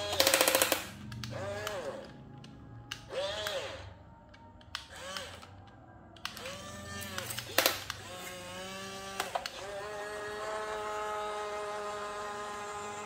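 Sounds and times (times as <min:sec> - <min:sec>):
sharp clicks: 0:00.1 - 0:03.6
small electric motors whining: 0:01.2 - 0:02.2, 0:03.0 - 0:04.0, 0:04.8 - 0:05.6, 0:06.2 - 0:13.0.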